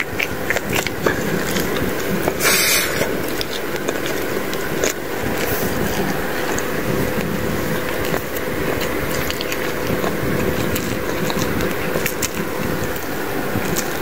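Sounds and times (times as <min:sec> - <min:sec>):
small clicks and crackles: 0:00.0 - 0:14.0
steady droning hum: 0:00.0 - 0:14.0.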